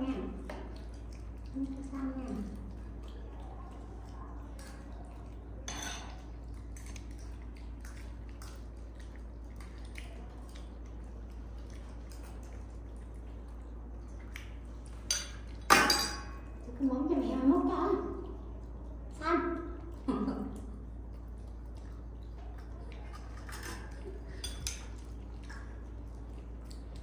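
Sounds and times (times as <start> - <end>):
dishes and spoon clinking: 5.7 - 6.2, 15.1 - 16.4, 23.4 - 25.0.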